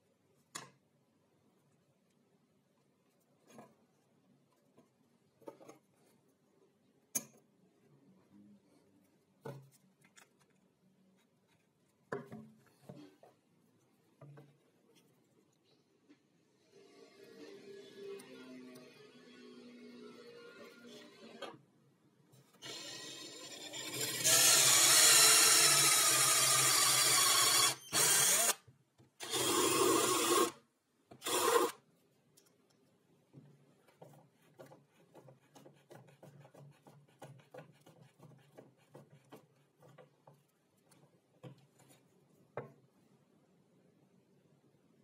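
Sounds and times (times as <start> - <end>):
power drill boring through plywood: 22.6 - 28.6, 29.2 - 30.6, 31.2 - 31.8
faint clicks and taps: 32.3 - 42.9.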